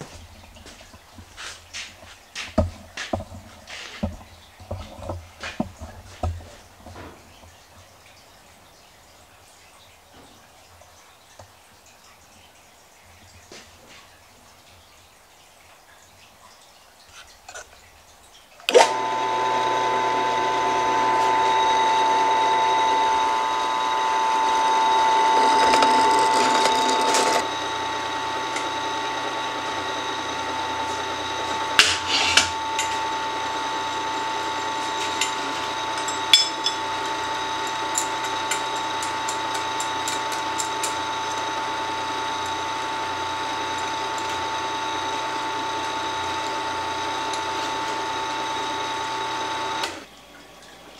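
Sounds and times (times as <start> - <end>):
drill press motor whining: 18.7 - 50.1.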